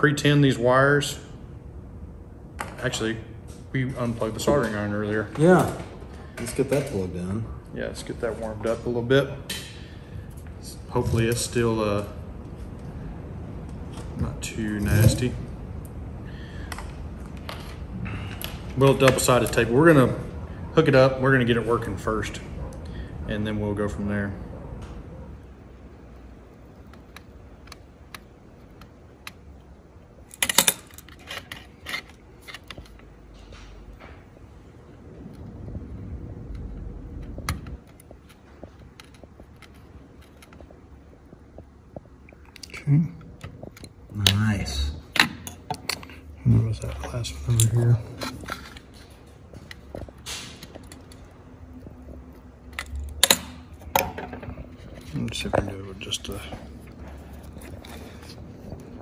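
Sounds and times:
hand tools clicking and tapping: 30.3s - 34.1s, 45.1s - 59.0s
tools clattering on tabletop: 45.2s - 46.2s, 52.8s - 55.7s.

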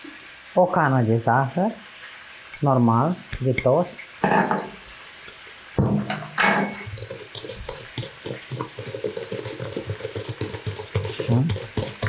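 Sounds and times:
whisk beating in metal bowl: 6.5s - 12.0s.

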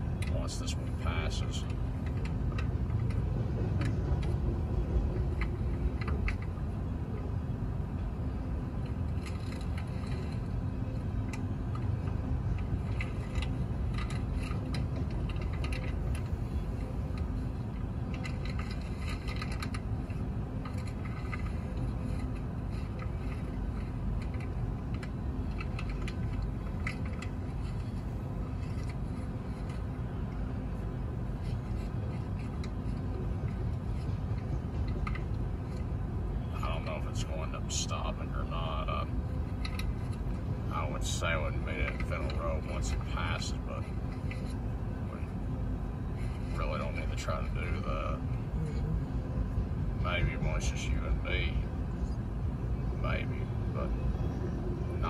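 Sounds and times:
train cars rumbling past: 0.0s - 55.0s
metallic clicks and rattles: 5.1s - 6.6s, 11.2s - 30.4s, 31.4s - 35.9s, 39.4s - 40.4s.

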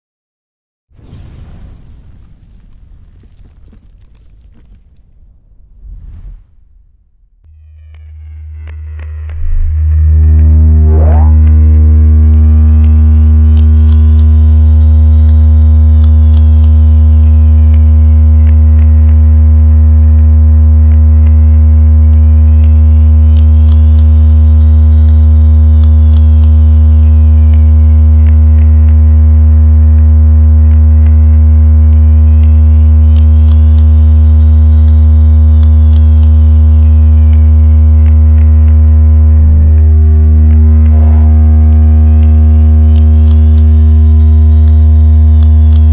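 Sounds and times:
deep electronic hum: 2.2s - 45.9s
faint high sweep: 9.0s - 13.9s.

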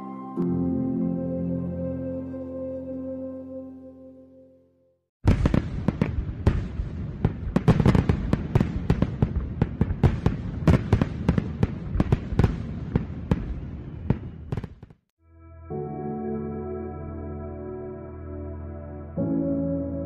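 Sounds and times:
fireworks bangs and crackles: 5.2s - 15.1s.

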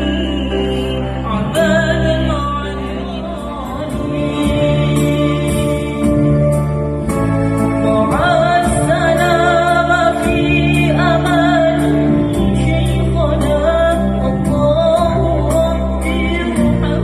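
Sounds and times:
boy singing into microphone: 7.8s - 17.0s.

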